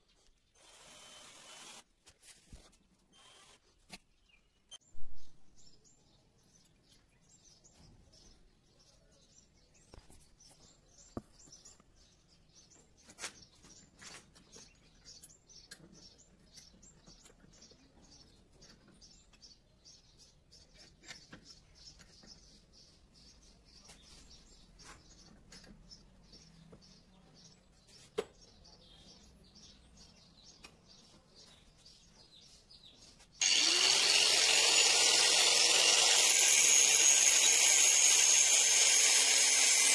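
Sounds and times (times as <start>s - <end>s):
small birds chirping: 0.0s - 39.9s
angle grinder whine: 33.4s - 39.9s.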